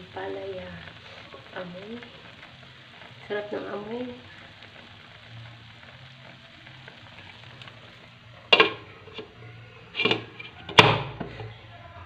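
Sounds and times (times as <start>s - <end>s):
broth bubbling in a pan: 0.0s - 12.0s
glass pot lid clinking: 8.5s - 9.3s.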